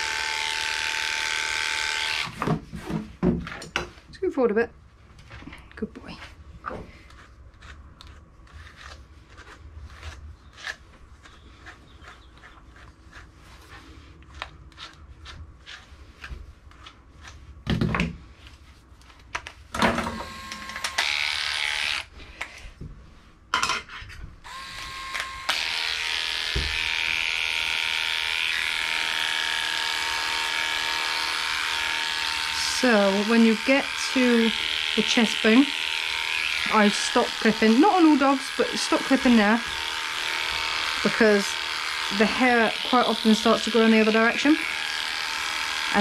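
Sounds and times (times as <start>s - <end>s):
electric clipper running: 0.0s - 2.4s, 19.9s - 22.1s, 24.4s - 46.0s
brush strokes through dog coat: 12.1s - 17.6s.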